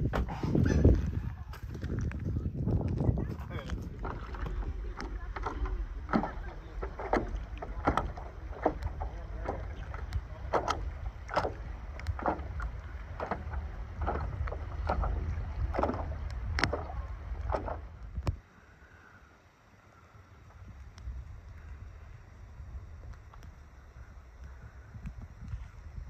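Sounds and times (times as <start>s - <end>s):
wind rumble on microphone: 0.0s - 18.5s, 20.0s - 26.0s
paddle splashing through water: 3.8s - 18.4s.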